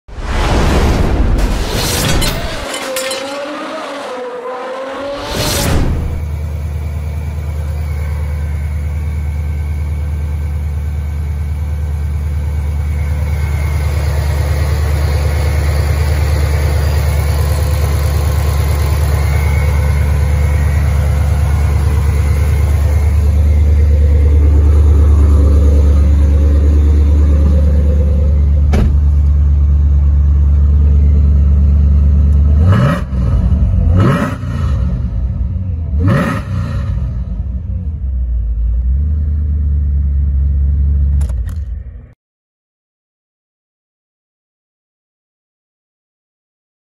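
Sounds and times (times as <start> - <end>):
engine revs rising: 3.2 - 8.7, 16.8 - 29.8, 30.9 - 37.4
supercharged engine idling: 6.1 - 34.0.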